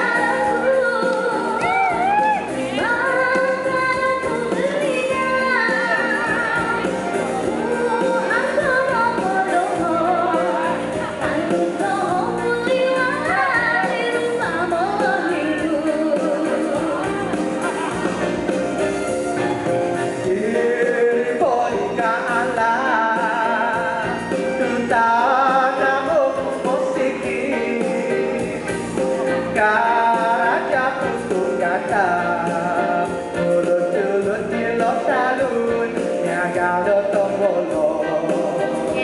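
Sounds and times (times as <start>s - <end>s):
woman and man singing: 0.0s - 18.3s, 20.2s - 28.6s, 29.2s - 39.0s
amplified backing music: 0.0s - 39.0s.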